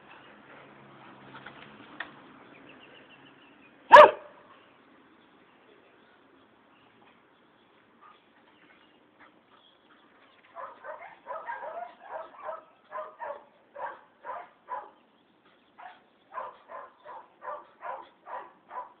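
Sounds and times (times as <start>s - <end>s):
dog barking: 3.9s - 4.4s, 10.6s - 15.0s, 15.8s - 19.0s.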